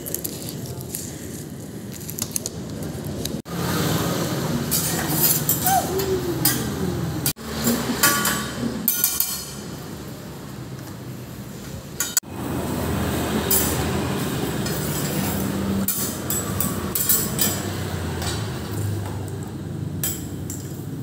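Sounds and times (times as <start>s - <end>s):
metal spatulas clinking on griddle: 4.7s - 6.7s, 7.6s - 9.7s, 13.5s - 13.8s, 14.6s - 19.0s, 20.0s - 20.9s.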